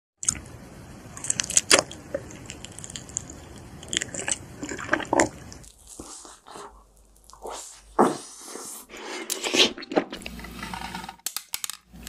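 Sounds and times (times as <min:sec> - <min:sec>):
biting and chewing: 0:01.2 - 0:07.8.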